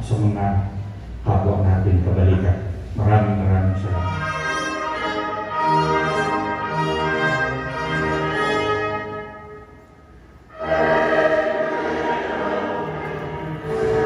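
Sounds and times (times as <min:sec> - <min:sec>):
orchestral music with brass: 0:03.6 - 0:14.0.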